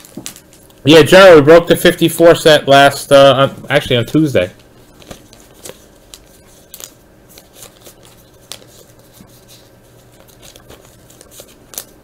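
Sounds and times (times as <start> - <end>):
foil wrapper and cards crinkling: 0.0 - 1.2, 3.9 - 12.0.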